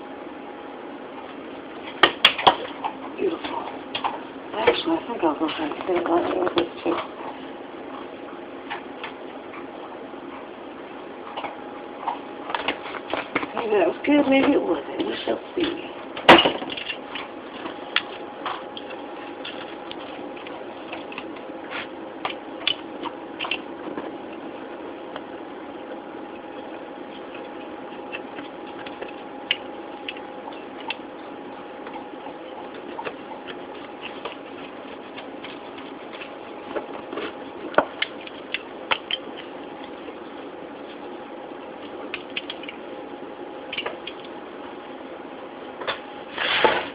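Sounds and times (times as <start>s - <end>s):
steady background hum: 0.0s - 46.9s
pizza cutter rolling through crust: 46.2s - 46.9s.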